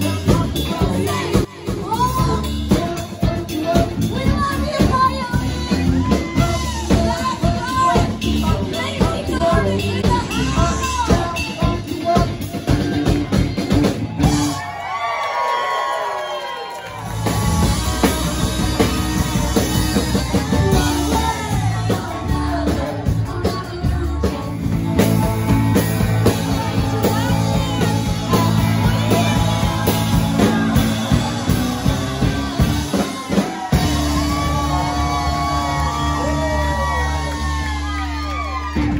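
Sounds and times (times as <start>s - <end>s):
person singing lead vocal: 0.0s - 13.7s, 17.2s - 38.8s
drum kit: 0.0s - 14.9s, 16.9s - 38.9s
bass guitar: 0.0s - 15.2s, 16.8s - 38.9s
electric guitar: 16.6s - 38.9s.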